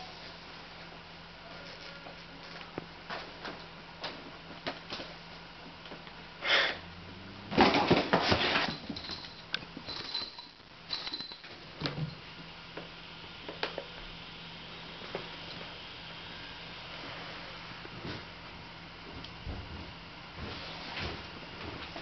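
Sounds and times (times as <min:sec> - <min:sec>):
cats scrambling in cardboard box: 0:07.5 - 0:09.3.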